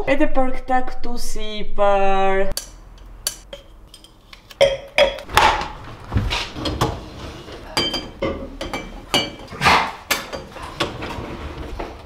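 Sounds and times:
glasses and cups clinking: 3.5 - 5.3, 7.7 - 9.5, 10.2 - 10.7.

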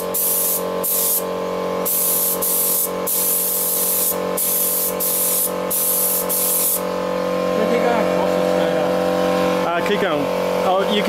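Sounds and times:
spray gun hissing: 0.0 - 1.2, 1.8 - 7.0
steady hum: 0.0 - 11.0.

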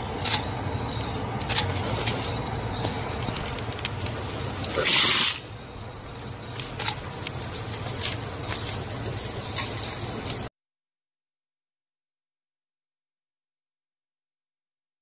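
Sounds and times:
low hum: 0.0 - 10.5
porcupine rattling quills: 0.2 - 10.5.

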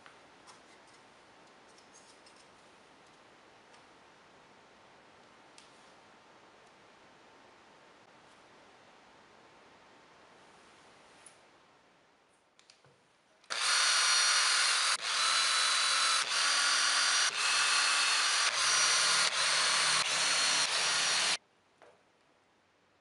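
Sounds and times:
cordless drill driving screws: 13.5 - 21.4.

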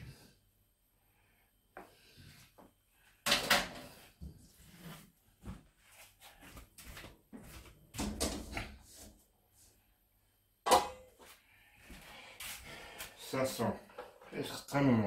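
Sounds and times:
frying pan knocks and clatter: 10.7 - 11.1.

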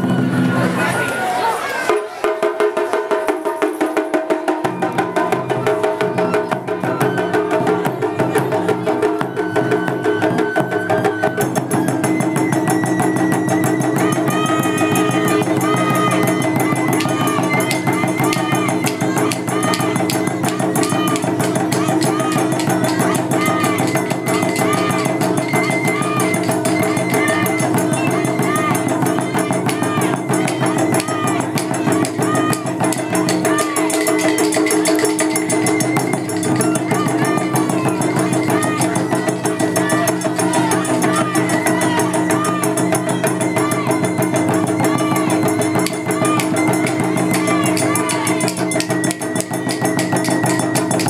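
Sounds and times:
taiko drums playing fast rhythm: 0.0 - 0.8, 1.9 - 51.0
bamboo flute melody: 0.0 - 51.0.

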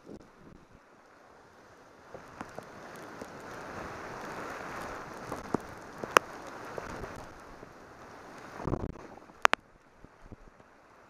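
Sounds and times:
rain hiss: 0.0 - 11.0
raindrops tapping on camera: 2.0 - 10.8.

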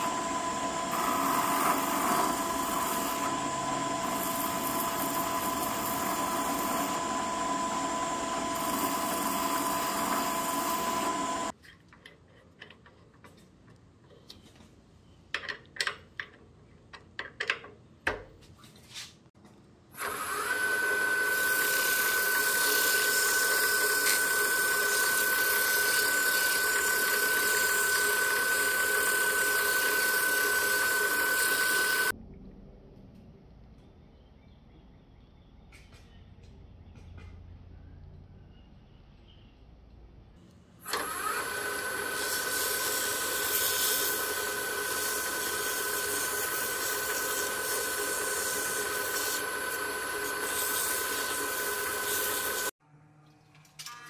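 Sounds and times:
drill press motor whine: 0.0 - 11.5, 20.0 - 32.1, 40.8 - 52.7.

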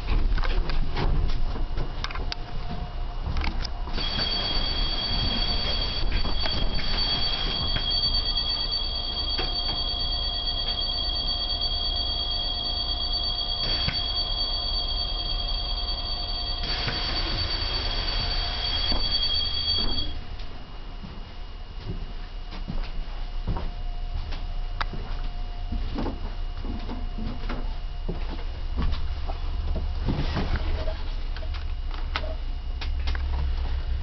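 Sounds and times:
electronic two-tone warning signal: 3.9 - 20.3.

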